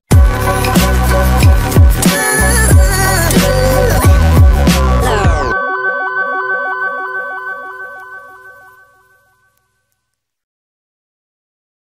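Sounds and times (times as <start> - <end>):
electronic synth music: 0.1 - 9.5.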